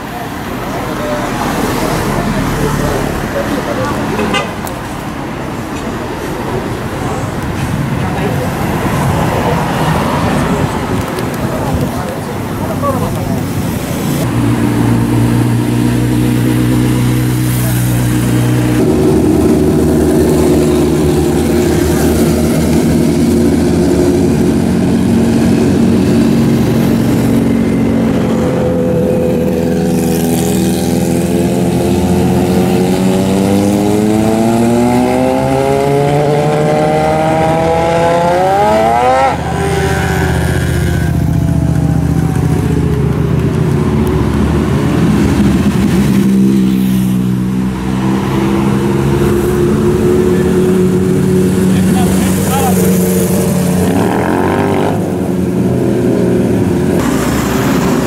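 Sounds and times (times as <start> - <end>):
motorcycle engines running: 9.8 - 58.0
motorcycle engine revving up: 13.7 - 58.0.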